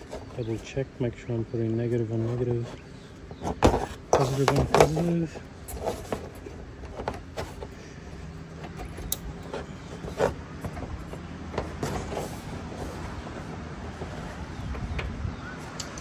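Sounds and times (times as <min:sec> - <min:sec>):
steady low hum: 0:00.0 - 0:16.0
plastic connectors clicking: 0:15.7 - 0:16.0.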